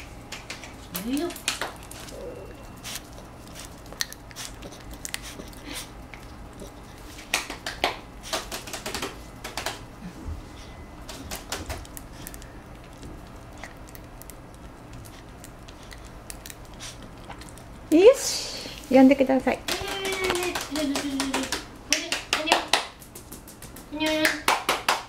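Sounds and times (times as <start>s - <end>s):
puppy claws tapping on hard floor: 0.3s - 2.0s, 7.2s - 9.8s, 11.1s - 12.4s, 19.6s - 25.0s.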